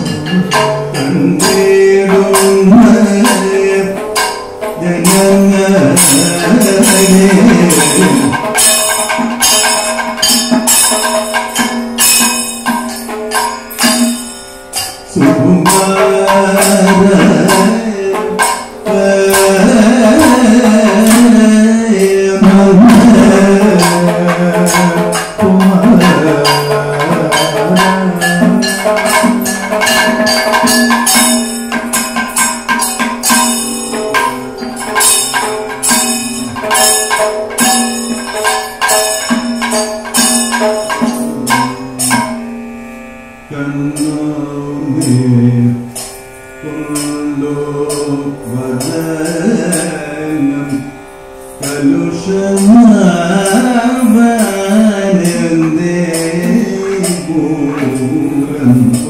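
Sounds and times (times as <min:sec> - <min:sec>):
person singing: 0:00.0 - 0:09.0, 0:15.1 - 0:31.3, 0:33.8 - 0:36.8, 0:40.1 - 0:42.6, 0:43.5 - 0:51.0, 0:51.6 - 0:59.0
rapid drum strokes: 0:00.0 - 0:42.5
ringing cymbals: 0:00.0 - 0:59.0.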